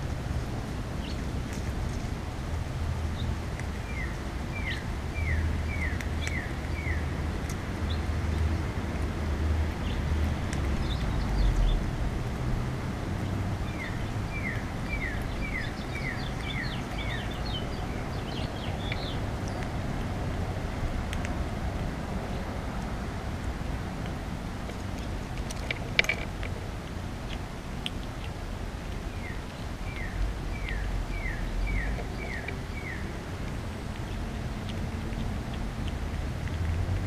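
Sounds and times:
low outdoor rumble: 0.0 - 37.0
songbird singing: 1.0 - 1.3, 3.1 - 8.8, 9.8 - 11.9, 13.2 - 20.2, 28.9 - 35.3
bird chirps: 3.8 - 7.0, 13.6 - 19.6, 29.1 - 33.0.

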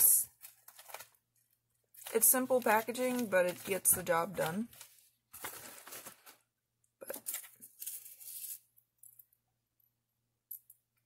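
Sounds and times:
packaging rustling and crinkling: 0.3 - 8.7.

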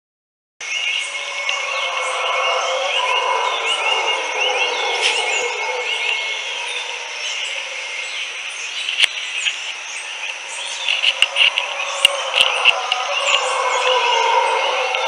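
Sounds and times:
howler monkeys howling: 0.6 - 9.0, 9.7 - 15.0
birds chirping: 0.6 - 15.0
insects trilling: 0.6 - 15.0
sharp clicks: 10.3 - 13.5.

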